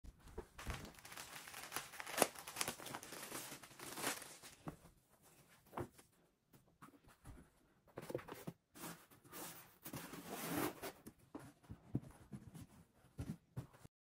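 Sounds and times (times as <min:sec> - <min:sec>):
plastic wrap crinkling and tearing: 0:00.5 - 0:04.6.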